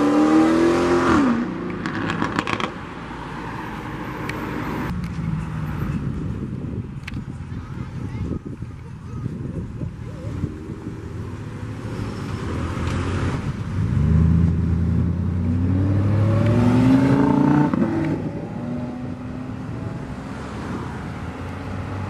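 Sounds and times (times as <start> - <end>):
car engine accelerating past: 12.2 - 19.9.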